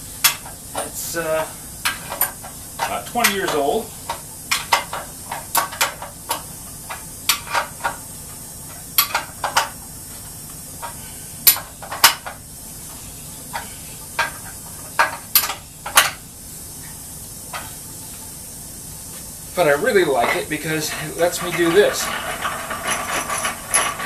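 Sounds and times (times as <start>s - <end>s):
wrench clinking on metal: 20.2s - 24.0s.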